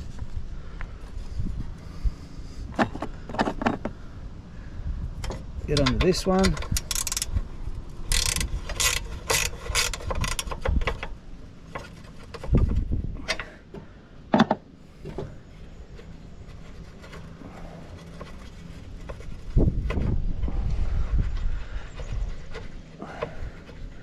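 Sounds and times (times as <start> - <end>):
spanner clicking on bolt: 5.2 - 7.3, 8.1 - 11.1.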